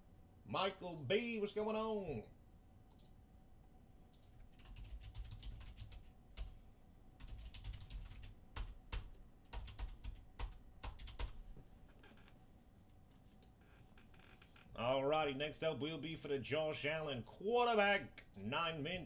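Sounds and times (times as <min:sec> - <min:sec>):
typing on computer keyboard: 0:04.1 - 0:06.6, 0:07.2 - 0:11.4.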